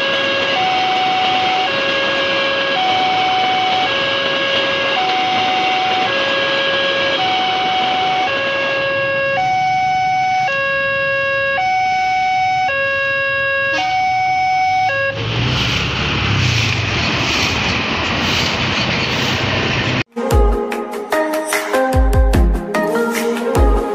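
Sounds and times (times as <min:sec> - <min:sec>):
level crossing alarm two tones: 0:00.0 - 0:15.2
road traffic: 0:00.0 - 0:20.1
truck passing: 0:14.8 - 0:20.1
music: 0:20.1 - 0:23.9.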